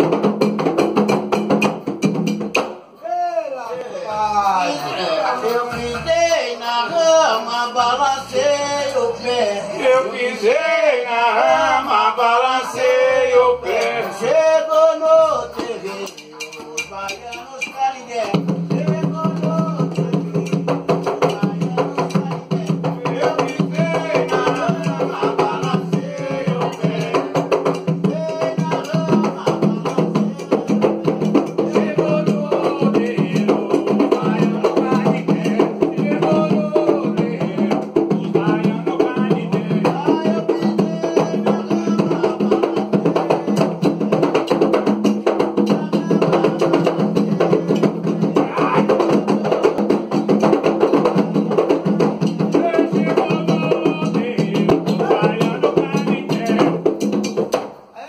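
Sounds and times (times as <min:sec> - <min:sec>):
hand drums beating: 0:00.0 - 0:02.8, 0:15.5 - 0:57.8
person singing: 0:03.0 - 0:50.0, 0:51.1 - 0:56.9
group of voices singing: 0:03.0 - 0:57.4.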